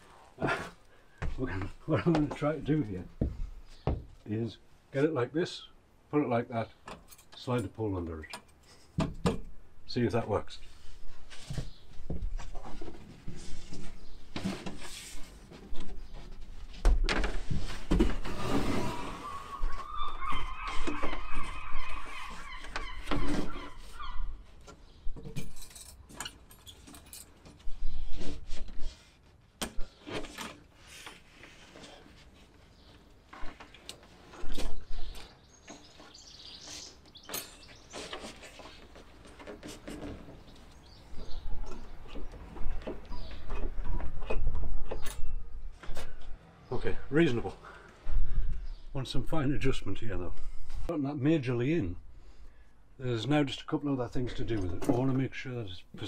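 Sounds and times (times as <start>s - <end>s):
drawn-out squeal: 18.4s - 24.3s.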